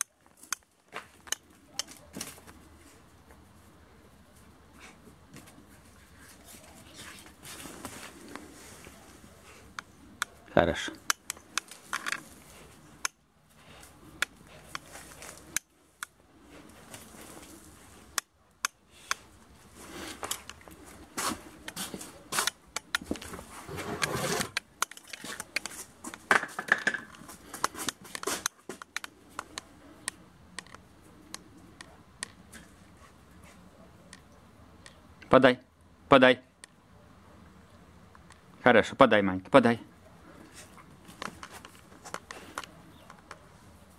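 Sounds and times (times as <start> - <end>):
claws clicking on concrete: 11.0 - 12.4, 24.6 - 30.8.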